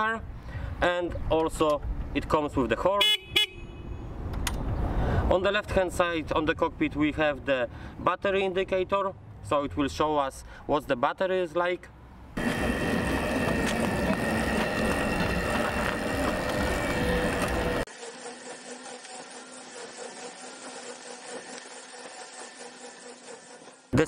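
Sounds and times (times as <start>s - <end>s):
noisy rush: 12.4s - 17.9s
electric motor whining: 12.4s - 24.0s.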